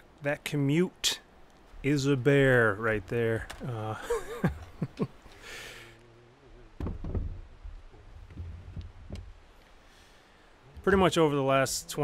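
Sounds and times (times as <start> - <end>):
wooden chair knocking and scraping: 6.8 - 7.4.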